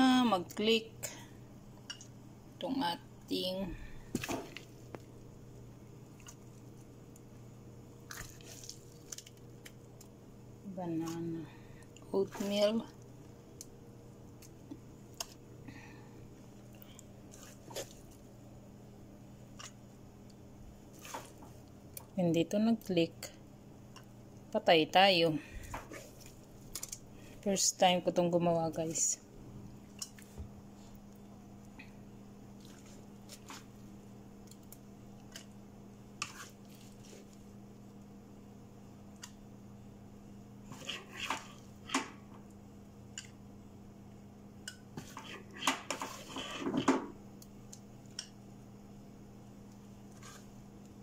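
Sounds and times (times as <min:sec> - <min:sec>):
low steady hum: 0:00.0 - 0:51.0
wet batter squishing: 0:06.0 - 0:06.9, 0:08.0 - 0:10.2, 0:32.5 - 0:35.5
wet scraping of batter: 0:08.1 - 0:09.4, 0:32.6 - 0:33.8, 0:36.2 - 0:37.5, 0:45.0 - 0:46.8, 0:50.1 - 0:50.6.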